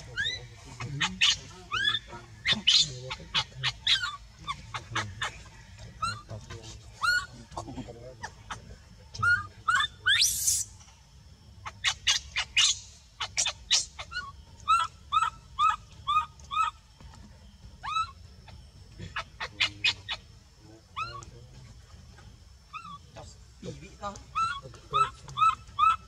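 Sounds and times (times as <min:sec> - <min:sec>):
baby monkey crying: 0:00.0 - 0:06.4, 0:07.0 - 0:10.7, 0:11.6 - 0:16.8, 0:17.8 - 0:20.3, 0:21.0 - 0:21.3, 0:22.7 - 0:23.1, 0:24.3 - 0:26.0.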